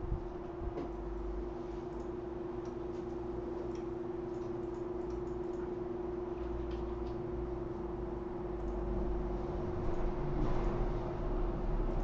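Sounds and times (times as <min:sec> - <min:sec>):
steady hum: 0:00.0 - 0:12.0
laptop keys clicking: 0:01.9 - 0:05.7.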